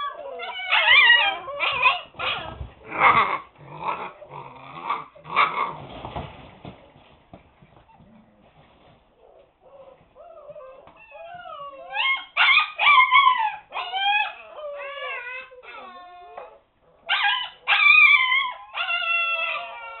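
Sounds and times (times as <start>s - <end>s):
puppies howling and whining: 0.0s - 5.2s, 9.2s - 20.0s.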